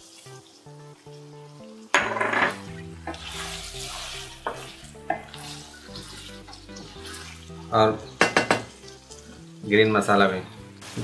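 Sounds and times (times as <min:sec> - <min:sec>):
wooden spatula scraping a pan: 0:02.4 - 0:07.5.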